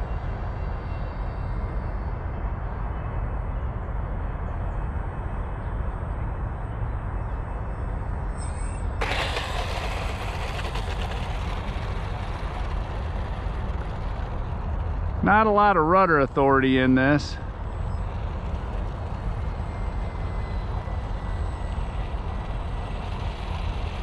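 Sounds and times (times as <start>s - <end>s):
model plane motor whine: 8.2s - 24.0s
hissing rush of plane rolling: 9.0s - 24.0s.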